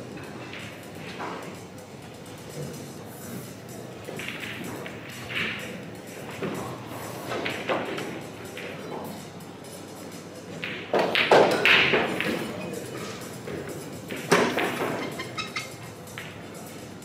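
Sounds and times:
pool balls knocking and clicking: 0.0 - 17.0
distant voices in large hall: 7.8 - 17.0.

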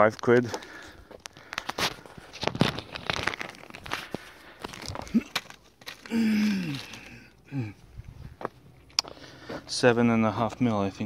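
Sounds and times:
plastic bag crinkling: 1.2 - 7.2
person's short vocal sound: 5.0 - 5.4, 6.0 - 7.8.

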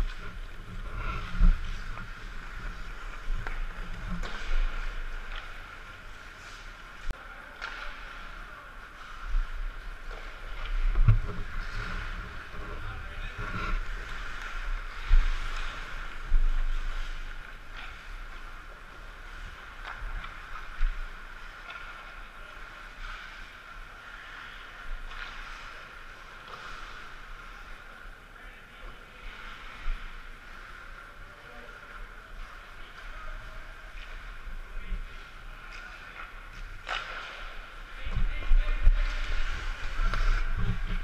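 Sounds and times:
camera thumps and rumble: 0.0 - 5.8, 9.3 - 18.4, 36.8 - 41.0
skating on ice: 0.0 - 41.0.

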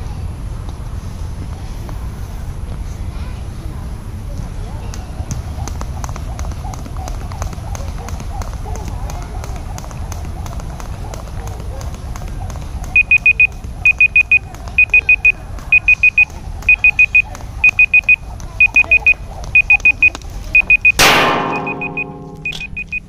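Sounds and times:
electronic timer beeping: 12.9 - 23.0.

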